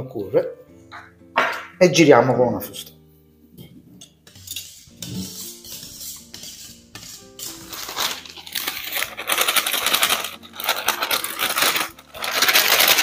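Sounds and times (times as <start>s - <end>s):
background music: 0.0s - 13.0s
whisk beating batter in metal bowl: 4.2s - 13.0s
flour sliding off paper: 5.0s - 13.0s.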